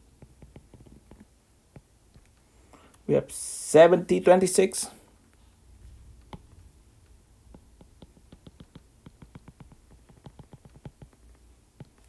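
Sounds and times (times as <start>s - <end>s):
stylus tapping on glass screen: 7.5s - 12.0s.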